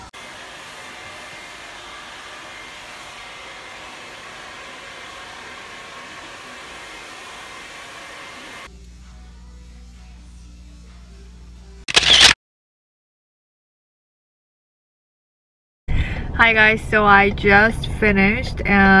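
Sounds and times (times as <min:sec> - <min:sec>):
hair dryer blowing: 0:00.0 - 0:08.7.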